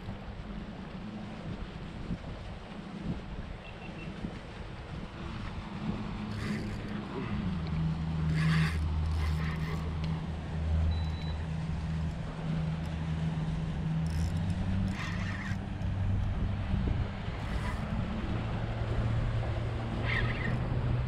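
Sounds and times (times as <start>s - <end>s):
scratchy bursts: 6.3s - 7.5s, 8.2s - 9.9s.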